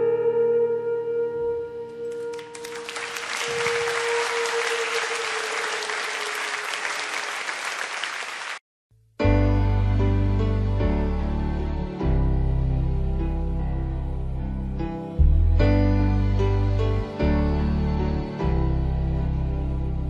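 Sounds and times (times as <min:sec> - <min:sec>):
song with long held note: 0:00.0 - 0:07.9
applause: 0:02.3 - 0:08.6.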